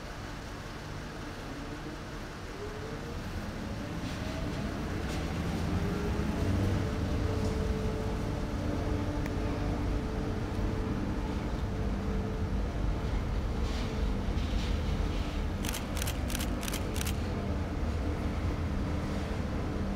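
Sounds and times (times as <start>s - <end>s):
constant hum: 0.0s - 19.9s
low mechanical rumble: 0.0s - 19.9s.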